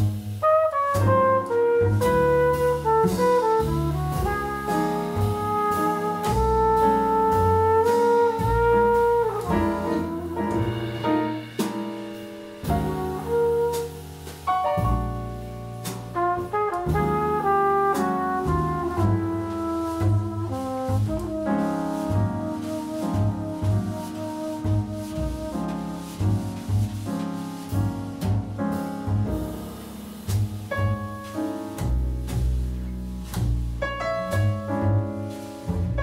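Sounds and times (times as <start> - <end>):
double bass: 0.0 - 36.0
drums with cymbal strokes: 0.0 - 36.0
piano: 0.0 - 36.0
flugelhorn melody: 0.3 - 11.0, 12.6 - 26.9.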